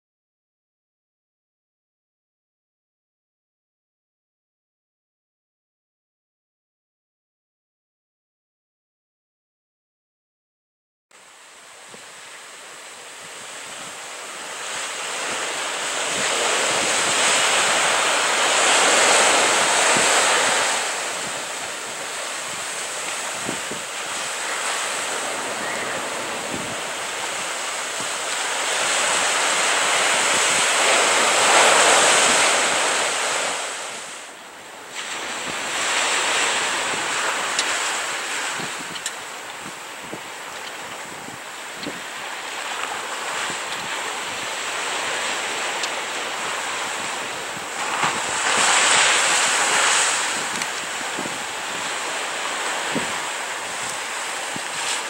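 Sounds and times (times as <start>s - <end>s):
ocean surf breaking: 11.2s - 55.0s.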